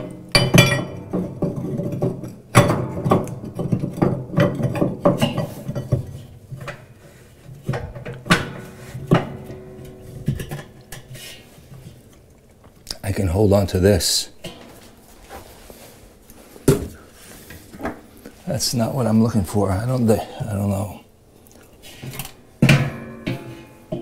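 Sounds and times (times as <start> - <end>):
metal tool clanking and scraping: 0.0 - 6.9, 7.5 - 12.1, 22.0 - 24.0.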